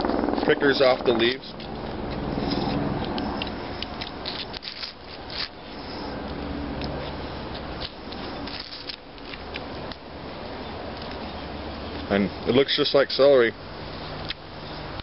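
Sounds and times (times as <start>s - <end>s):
leaves rustling: 4.2s - 6.2s, 6.9s - 10.4s.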